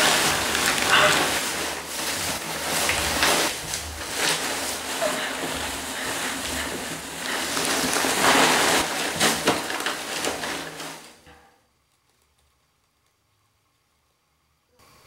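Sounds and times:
loud crackling and rustling: 0.0 - 11.2.

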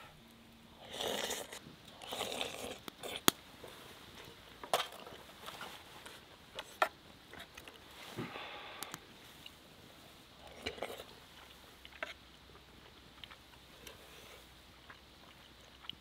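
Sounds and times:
slurping soup: 0.8 - 3.3.

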